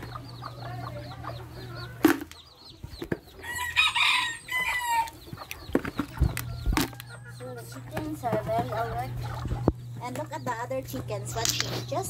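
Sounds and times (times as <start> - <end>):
rooster crowing: 3.4 - 5.2.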